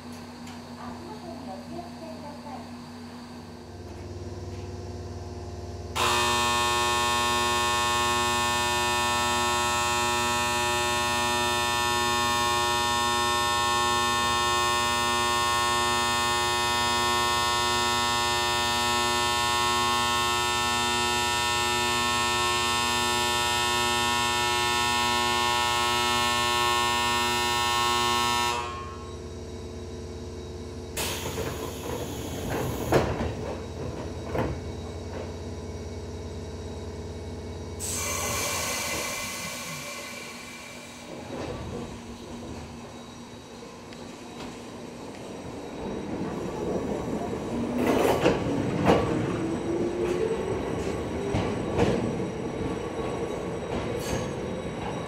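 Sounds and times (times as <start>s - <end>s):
train departure bell ringing: 6.0s - 29.3s, 49.0s - 55.0s.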